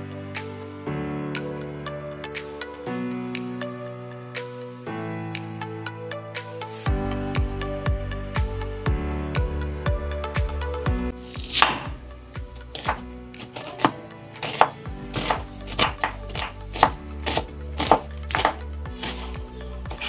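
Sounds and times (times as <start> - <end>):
background music: 0.0 - 20.0
knife chopping on wooden board: 11.4 - 12.0, 12.7 - 20.0.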